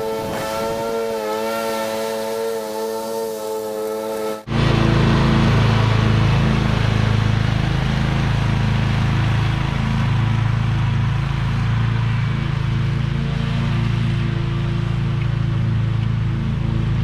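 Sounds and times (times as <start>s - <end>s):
lawn mower engine running: 0.0s - 17.0s.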